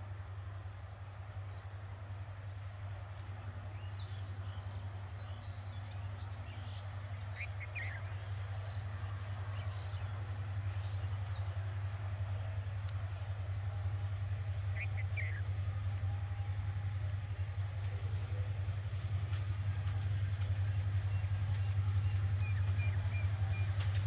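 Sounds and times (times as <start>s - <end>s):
diesel locomotive drone: 0.0s - 24.0s.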